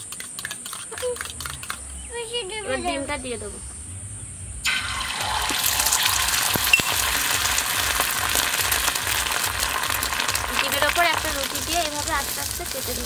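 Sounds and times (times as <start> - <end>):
egg sizzling in hot oil: 4.6 - 13.0.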